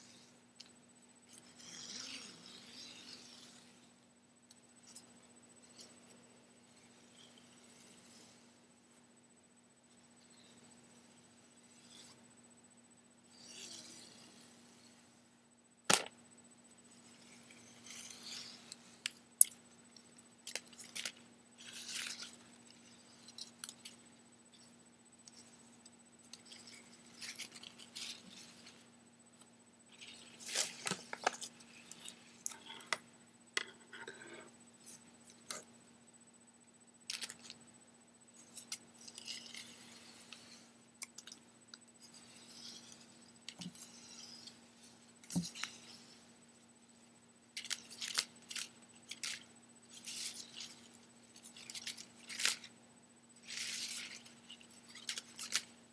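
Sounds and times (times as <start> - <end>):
ribbon rustling and crinkling: 29.9 - 33.0, 47.6 - 52.7, 53.4 - 55.8.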